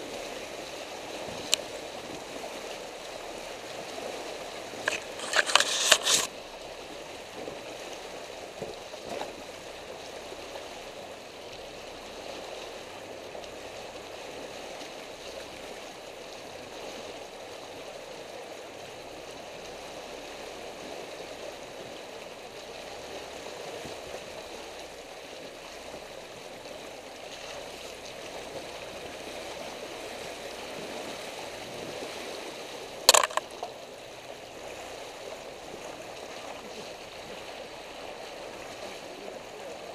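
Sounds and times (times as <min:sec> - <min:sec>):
water rushing: 0:00.0 - 0:12.8
branches scraping vehicle: 0:04.8 - 0:06.3.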